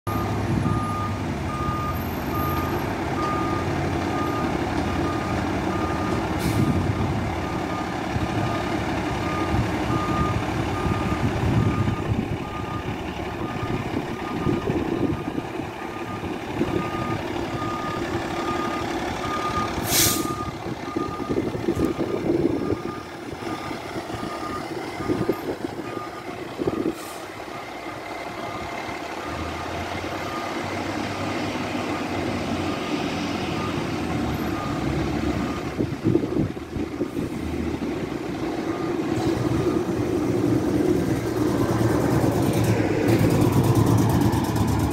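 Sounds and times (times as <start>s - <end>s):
diesel engine running: 0.1s - 44.9s
air brakes hissing: 6.3s - 6.8s, 19.8s - 20.5s, 26.8s - 27.4s.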